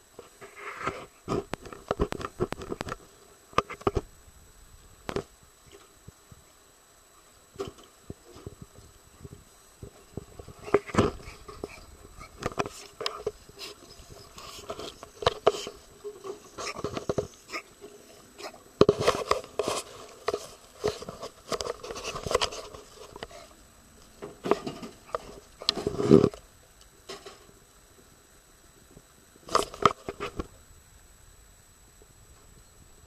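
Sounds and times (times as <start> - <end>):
dog snuffling and breathing: 9.9 - 23.6.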